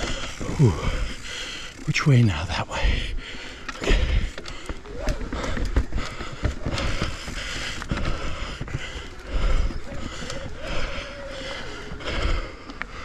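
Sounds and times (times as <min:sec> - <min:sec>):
bike tyre and trail noise: 0:00.0 - 0:13.0
bike knocking and clattering: 0:03.3 - 0:13.0.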